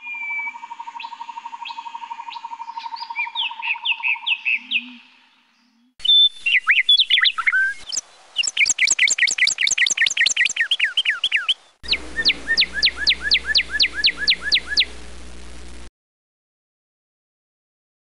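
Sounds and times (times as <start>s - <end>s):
songbirds chirping: 0.0s - 15.8s
rapid bird trill: 6.0s - 15.1s.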